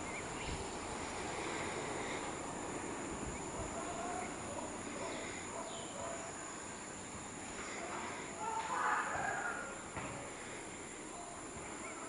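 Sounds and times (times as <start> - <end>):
high insect hum: 0.0 - 12.0
faint bird chirps: 11.1 - 12.0.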